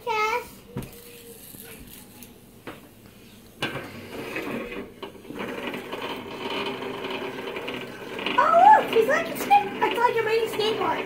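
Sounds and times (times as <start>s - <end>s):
toy robot buzzing and rattling: 0.9s - 2.4s, 4.0s - 11.0s.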